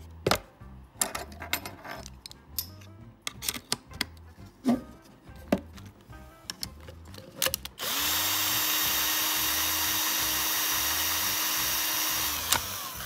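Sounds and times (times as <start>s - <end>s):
electric drill running: 7.8s - 13.0s.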